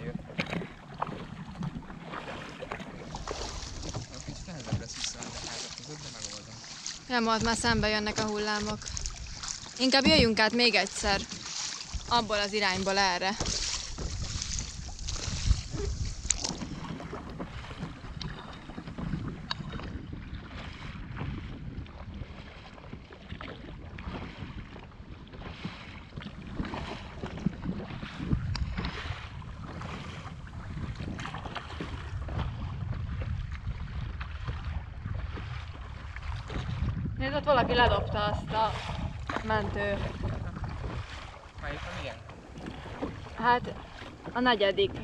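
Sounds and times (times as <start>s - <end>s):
paddles splashing: 0.0s - 45.0s
wind buffeting microphone: 0.0s - 45.0s
knocks on plastic hull: 9.8s - 10.4s.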